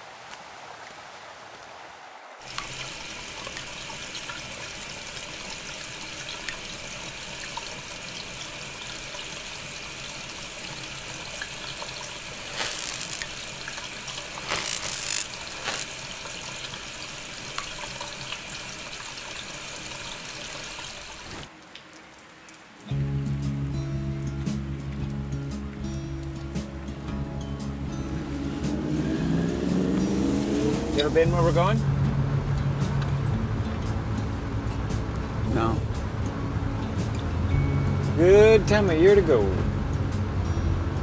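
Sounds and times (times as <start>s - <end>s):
tap water running into sink: 2.5s - 21.5s.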